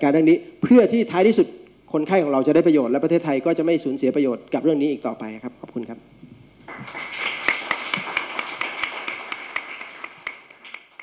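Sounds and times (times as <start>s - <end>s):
audience applauding: 6.7s - 11.0s.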